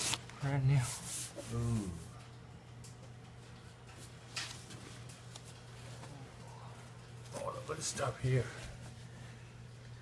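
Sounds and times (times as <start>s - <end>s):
foam wrapping rustle: 0.0s - 1.4s
low steady hum: 0.0s - 10.0s.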